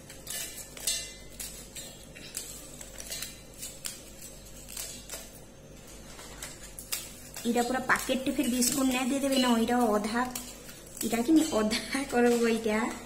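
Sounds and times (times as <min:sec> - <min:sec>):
biscuits snapping: 0:00.0 - 0:05.4.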